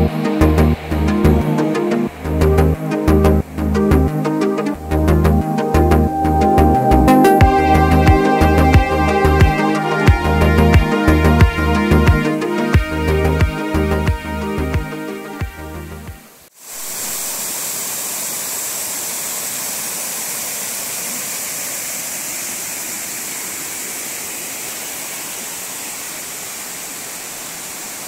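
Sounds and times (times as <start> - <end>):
background music: 0.0 - 16.3
water rushing over rocks: 16.6 - 28.0.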